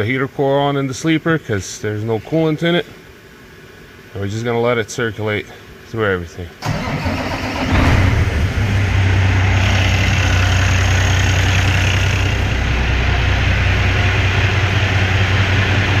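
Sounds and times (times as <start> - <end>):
diesel truck engine idling: 6.6 - 16.0.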